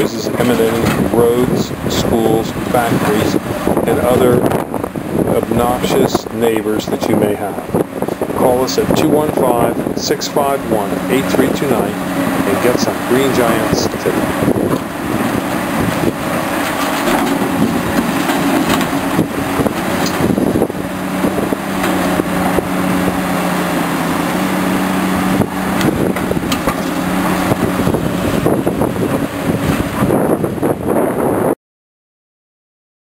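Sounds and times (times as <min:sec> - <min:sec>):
excavator diesel engine running: 0:00.1 - 0:30.3
bucket knocks and clanks: 0:16.6 - 0:19.0.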